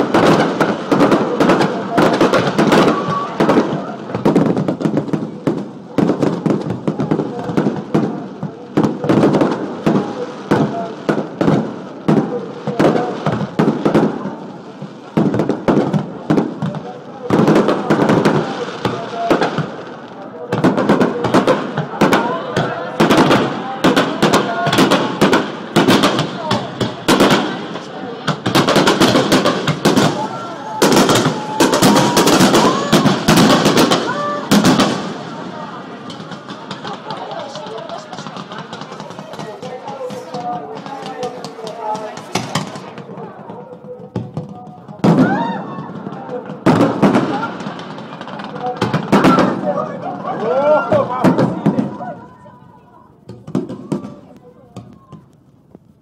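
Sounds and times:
fireworks bursting with bangs: 0:00.0 - 0:56.0
firework shells bursting: 0:23.0 - 0:35.4, 0:36.0 - 0:45.2.

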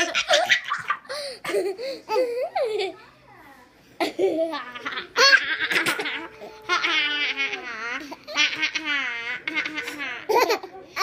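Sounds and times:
baby laughing: 0:04.0 - 0:11.0.

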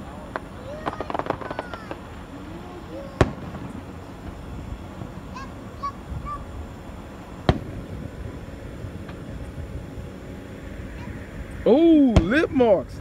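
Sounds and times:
firework bang: 0:00.0 - 0:02.2, 0:03.1 - 0:04.4, 0:07.4 - 0:08.1, 0:12.1 - 0:12.5
steady background noise: 0:00.0 - 0:13.0.

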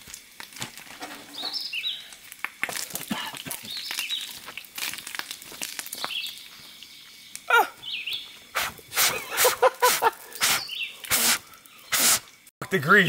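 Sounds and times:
songbird singing: 0:01.3 - 0:02.1, 0:03.6 - 0:04.6, 0:05.9 - 0:12.5.

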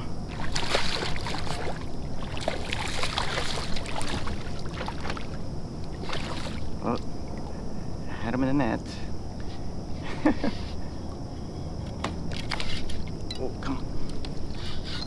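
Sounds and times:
low wind rumble: 0:00.0 - 0:15.0
fish splashing at the surface: 0:00.3 - 0:06.8.

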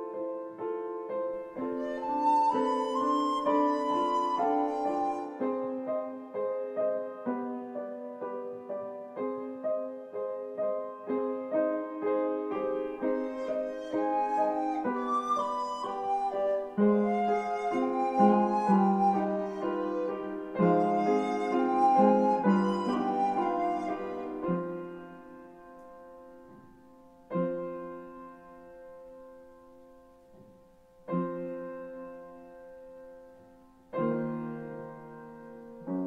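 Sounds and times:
piano notes: 0:00.0 - 0:36.0
recorder melody: 0:13.1 - 0:24.6.

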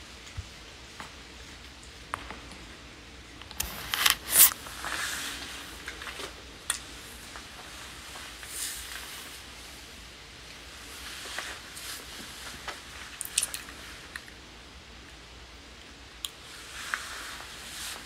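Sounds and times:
faint room hiss: 0:00.0 - 0:18.0
phone handling rustling and scraping: 0:03.5 - 0:04.5.

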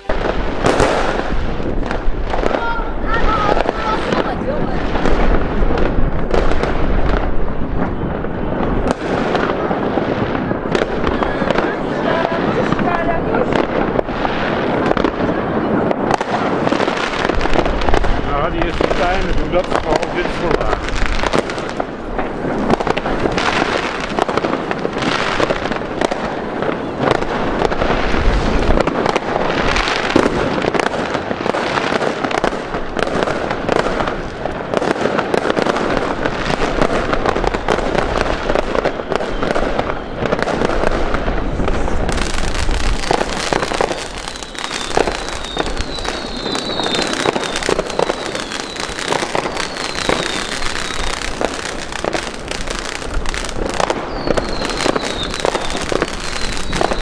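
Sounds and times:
firecracker bangs and pops: 0:00.0 - 0:57.0
firework fountain crackling: 0:00.0 - 0:57.0
firework whistles: 0:36.5 - 0:57.0.

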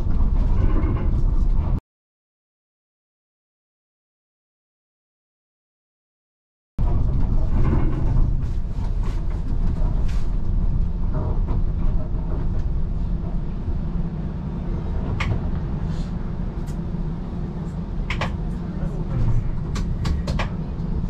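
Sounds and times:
streetcar rumble: 0:00.0 - 0:01.8, 0:06.8 - 0:21.0.

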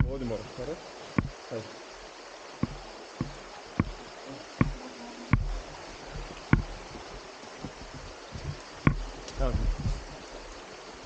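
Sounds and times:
running water hiss: 0:00.0 - 0:11.0
knocks on rocks and branches: 0:02.6 - 0:04.0, 0:04.6 - 0:10.1.

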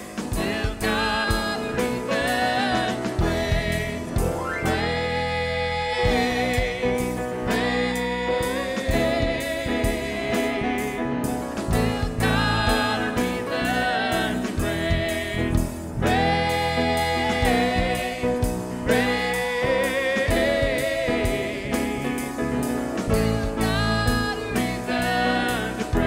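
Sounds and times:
electronic drum kit: 0:00.0 - 0:04.9, 0:06.0 - 0:26.0
man singing: 0:00.0 - 0:11.0, 0:11.7 - 0:22.1, 0:23.1 - 0:26.0
electric bass guitar: 0:00.0 - 0:26.0
woman singing: 0:23.2 - 0:26.0.

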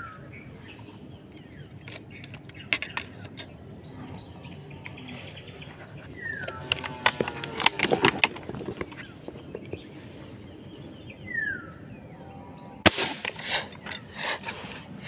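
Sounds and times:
rustling and scraping of gear: 0:04.8 - 0:10.6.

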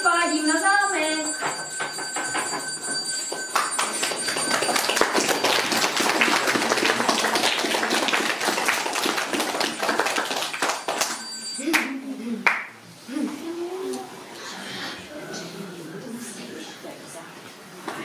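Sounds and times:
audience clapping: 0:03.2 - 0:12.7.

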